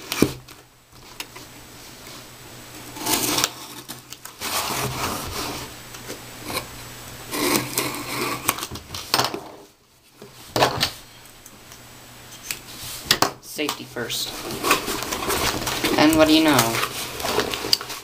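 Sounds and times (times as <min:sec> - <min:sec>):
cardboard rubbing: 0:02.8 - 0:05.7, 0:14.3 - 0:18.0.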